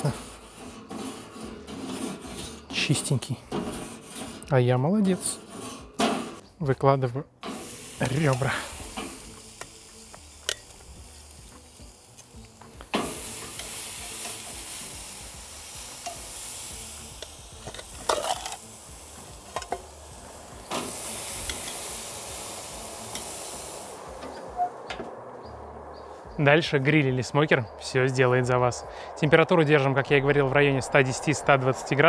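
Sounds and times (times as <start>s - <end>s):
steady hiss: 0.0s - 4.4s, 7.4s - 25.0s, 26.0s - 32.0s.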